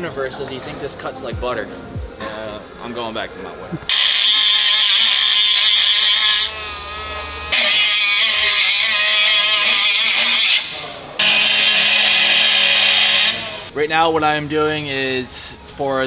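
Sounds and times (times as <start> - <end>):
cut-off tool cutting metal: 3.9 - 13.7.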